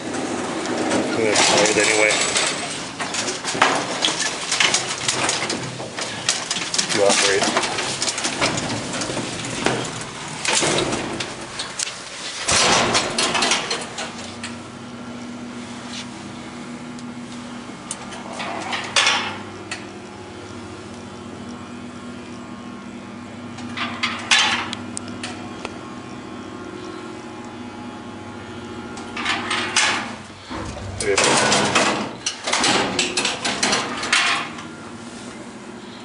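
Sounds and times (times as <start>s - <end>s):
elevator machine hum: 0.0s - 36.0s
loud metallic clattering: 12.4s - 14.2s, 29.8s - 34.4s.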